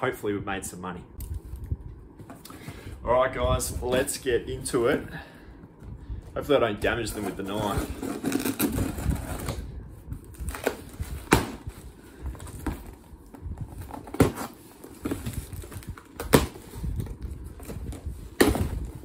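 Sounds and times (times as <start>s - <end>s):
cardboard scraping: 6.9s - 9.6s.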